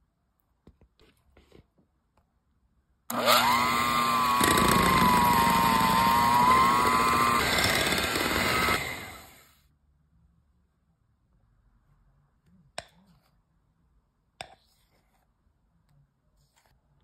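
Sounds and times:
electric hand mixer running: 0:03.1 - 0:09.4.

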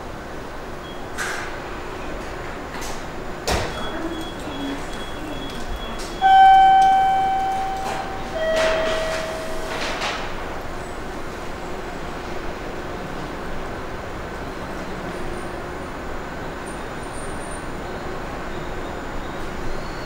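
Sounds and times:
two-note electronic station chime: 0:06.2 - 0:10.0.

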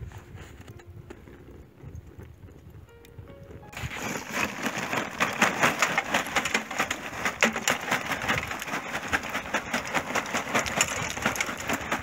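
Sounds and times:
charcoal clattering into metal tray: 0:03.8 - 0:12.0.

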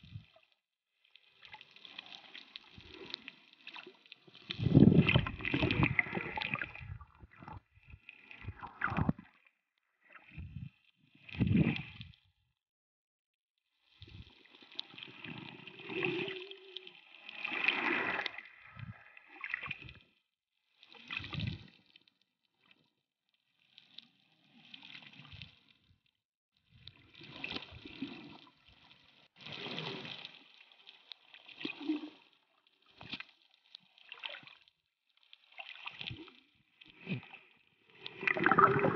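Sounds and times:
muffled underwater sloshing: 0:01.6 - 0:09.4, 0:37.9 - 0:38.9.

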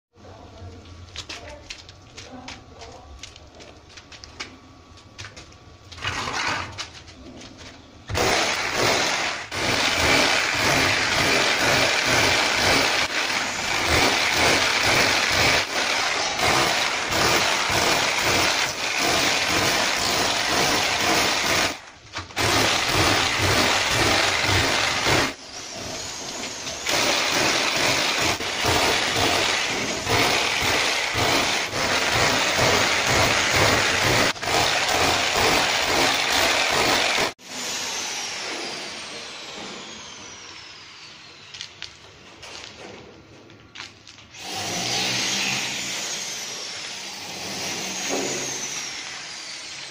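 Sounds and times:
hammer drill into concrete: 0:08.1 - 0:40.7, 0:44.4 - 0:49.9.

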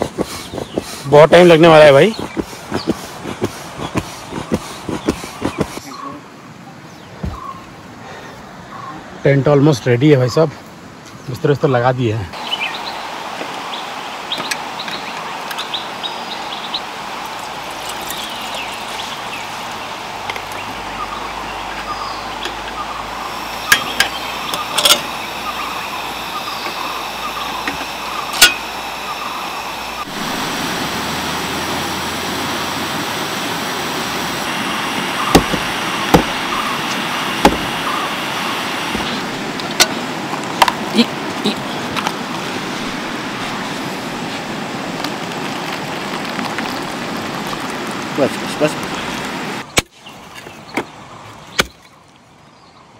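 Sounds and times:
river rushing: 0:12.4 - 0:49.7.

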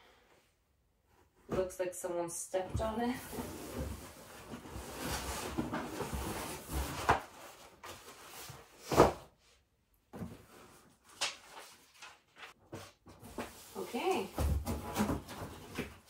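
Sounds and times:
cardboard rustling and scraping: 0:02.8 - 0:09.3, 0:10.2 - 0:16.0.

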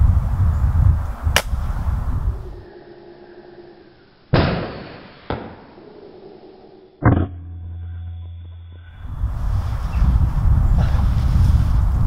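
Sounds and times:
wind rumbling on microphone: 0:00.0 - 0:02.8, 0:08.7 - 0:12.0
air rifle shot: 0:01.3 - 0:01.6, 0:04.3 - 0:05.8
small sharp crack: 0:01.4 - 0:01.6.

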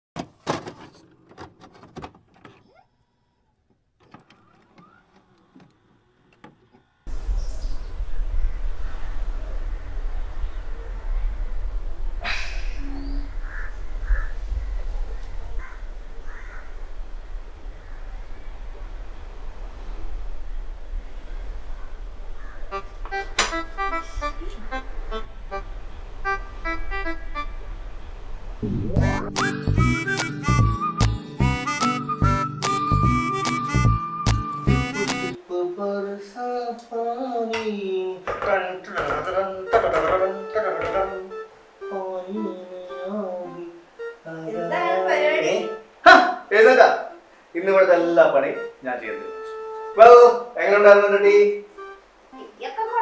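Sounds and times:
plucky keyboard music: 0:22.7 - 0:27.6, 0:28.6 - 0:35.4, 0:39.4 - 0:45.9, 0:48.4 - 0:50.4, 0:51.7 - 0:53.0.

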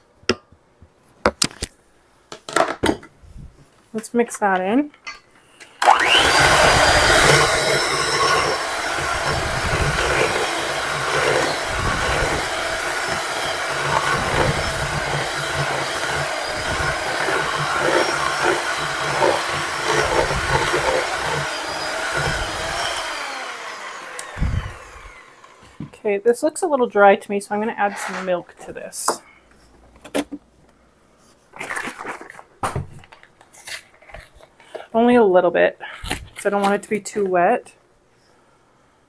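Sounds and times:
electric hand mixer running: 0:05.8 - 0:25.8.

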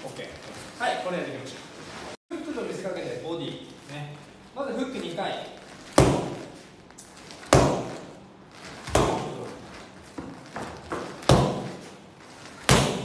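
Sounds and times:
boxing gloves hitting focus mitts: 0:05.9 - 0:06.6, 0:07.3 - 0:12.0, 0:12.6 - 0:13.0.

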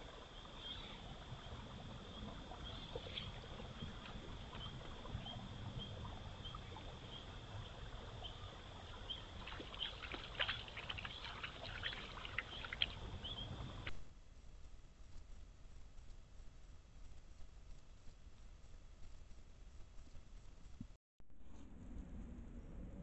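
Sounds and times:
water lapping at the bank: 0:00.0 - 0:13.9
low wind rumble: 0:00.0 - 0:23.0
small splashes and clicks: 0:02.2 - 0:05.3, 0:06.0 - 0:13.9.

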